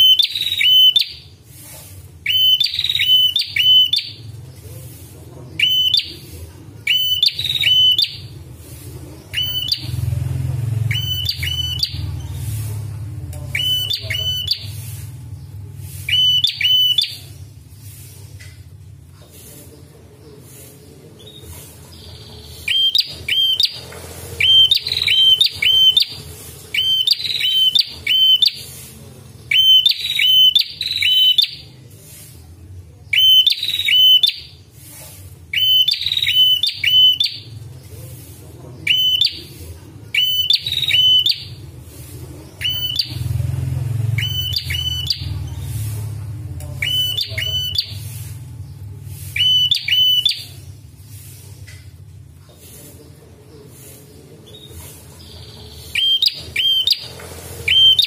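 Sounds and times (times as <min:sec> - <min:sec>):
bird chirping: 0:00.0 - 0:01.4, 0:02.2 - 0:32.1, 0:33.1 - 0:34.6, 0:35.5 - 0:58.0.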